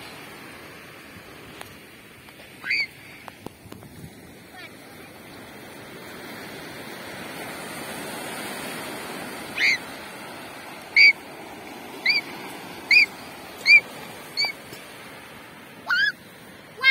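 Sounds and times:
small waves washing over sand: 0.0 - 16.9.

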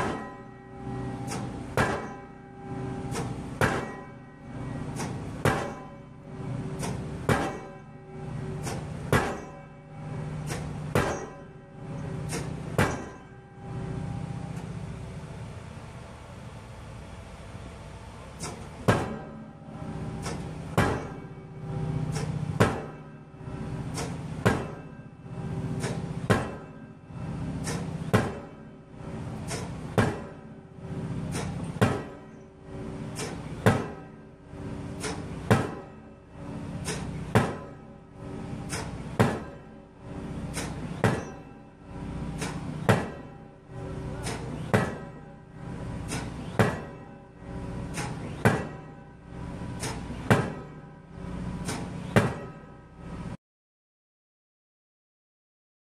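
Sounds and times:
impact hammer metallic blows: 0.0 - 15.5, 18.3 - 53.2
machine drone: 0.0 - 53.4.

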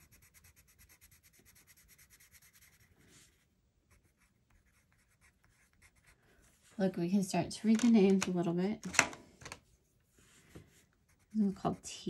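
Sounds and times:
pencil scratching on paper: 0.0 - 6.6, 10.5 - 12.0.

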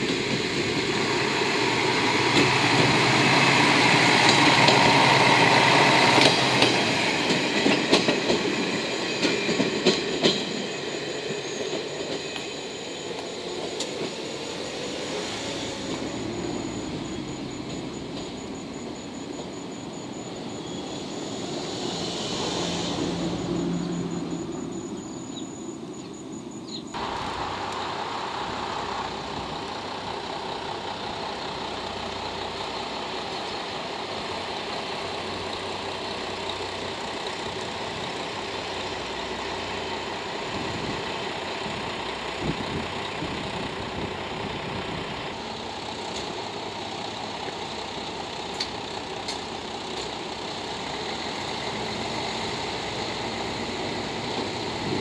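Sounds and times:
diesel railcar engine idling: 0.0 - 55.0
engine rumble: 12.3 - 55.0.

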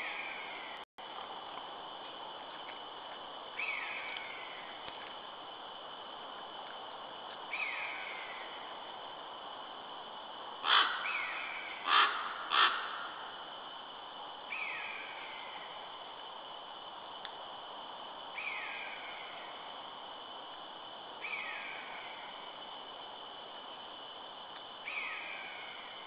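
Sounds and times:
steady high whine: 0.0 - 26.0
harsh bird calls: 10.6 - 13.1.

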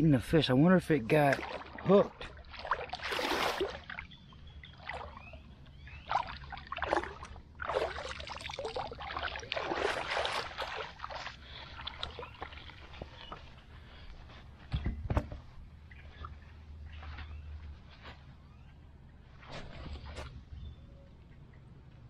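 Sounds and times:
paddle splashing in water: 1.3 - 4.1, 4.7 - 13.3.

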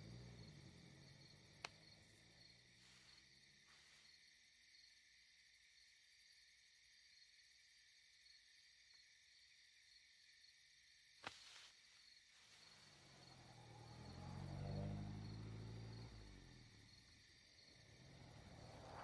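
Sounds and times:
car passing: 0.0 - 4.0, 12.5 - 19.0
crickets chirping: 0.0 - 19.0.

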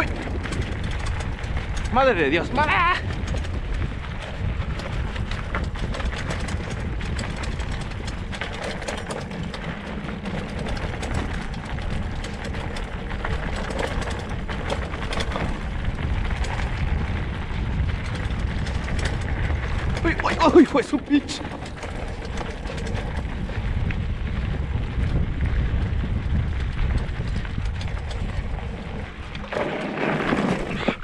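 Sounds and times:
bike clicking and rattling: 0.0 - 31.0
tyres rolling over dirt and stones: 0.0 - 31.0
wind on microphone: 0.0 - 31.0.

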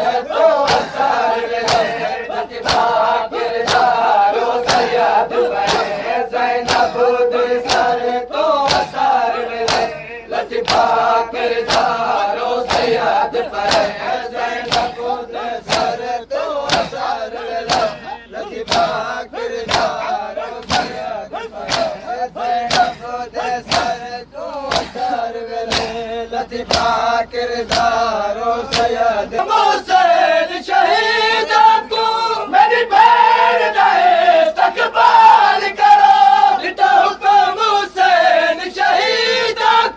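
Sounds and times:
men chanting in unison: 0.0 - 39.9
hands slapping chests: 0.6 - 1.0, 1.6 - 2.0, 2.6 - 2.9, 3.6 - 4.0, 4.6 - 5.0, 5.6 - 6.0, 6.6 - 7.0, 7.6 - 8.0, 8.6 - 9.0, 9.6 - 10.0, 10.6 - 10.9, 11.6 - 12.0, 12.6 - 13.0, 13.6 - 14.0, 14.6 - 15.0, 15.7 - 16.0, 16.7 - 17.0, 17.6 - 18.0, 18.7 - 19.0, 19.6 - 20.0, 20.6 - 22.0, 22.7 - 23.0, 23.7 - 24.0, 24.7 - 25.0, 25.7 - 26.0, 26.7 - 27.0, 27.7 - 28.0, 28.7 - 29.0.

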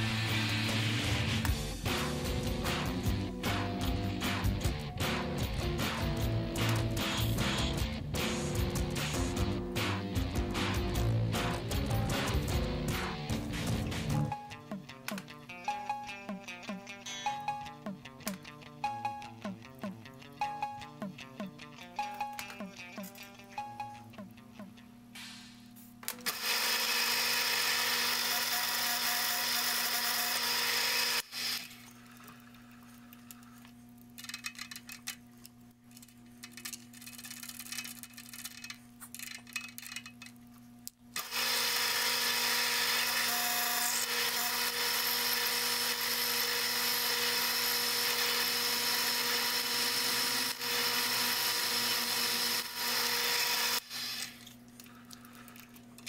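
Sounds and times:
drill motor running: 26.2 - 31.8, 41.2 - 54.5
drill bit cutting metal: 26.3 - 31.7, 41.2 - 54.4.

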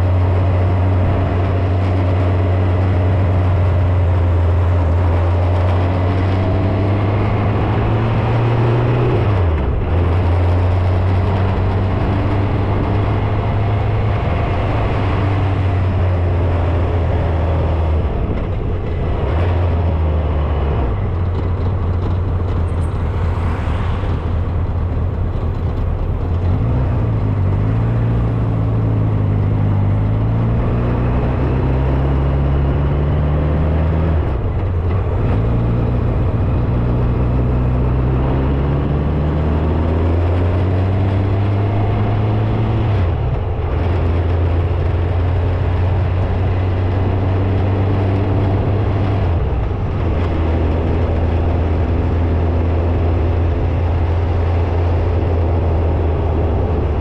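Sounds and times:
wind and road noise: 0.0 - 57.0
motorcycle engine running: 18.0 - 30.7.

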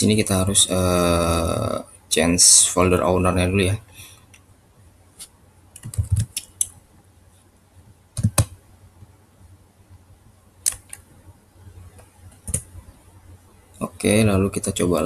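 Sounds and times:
mouse and keyboard clicks: 5.2 - 6.8, 10.7 - 11.1.

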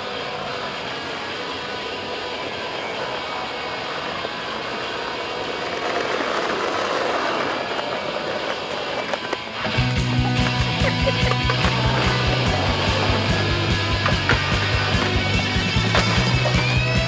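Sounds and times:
skateboard wheels rolling on asphalt: 0.0 - 17.0
music with heavy bass beat: 9.6 - 17.0.

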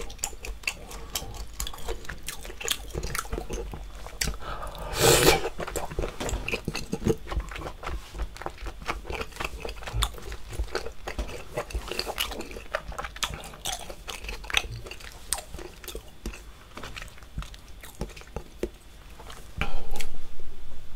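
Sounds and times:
person chewing wetly: 0.0 - 20.1.

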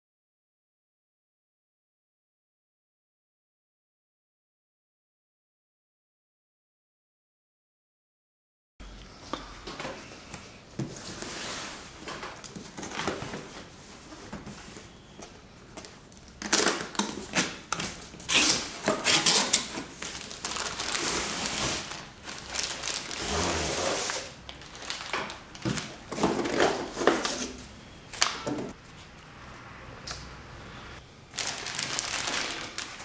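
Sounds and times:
plastic wrapping rustling: 15.7 - 29.1, 31.2 - 33.0.

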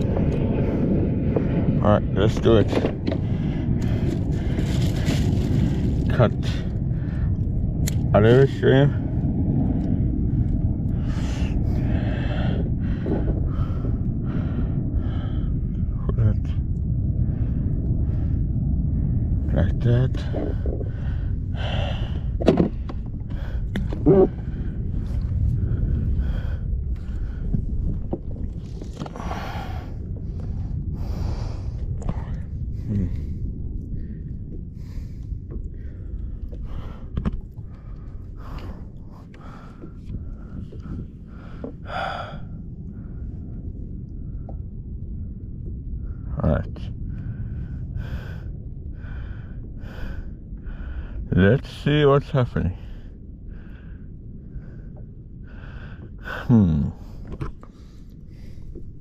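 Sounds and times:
steady low rumble: 0.0 - 59.0
wind buffeting microphone: 0.0 - 59.0
person breathing hard: 10.9 - 15.8, 20.3 - 27.8, 30.9 - 43.3, 47.1 - 51.3, 52.9 - 58.9.

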